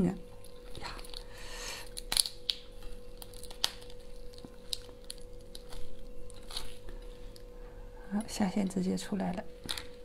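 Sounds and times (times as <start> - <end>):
faint steady hum: 0.0 - 10.0
lobster shell rustling: 0.3 - 7.6
shell cracking: 0.4 - 7.5.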